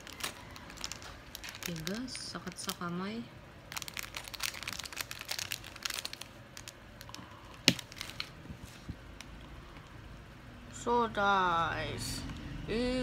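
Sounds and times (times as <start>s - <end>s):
plastic parts clicking and crinkling: 0.0s - 2.8s, 3.7s - 9.9s.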